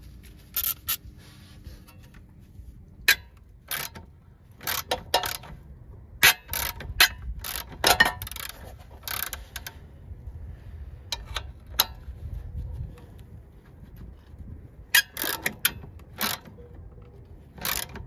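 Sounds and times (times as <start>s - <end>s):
socket ratchet clicking: 3.1s - 5.6s, 6.2s - 9.7s, 15.0s - 16.5s, 17.6s - 18.0s.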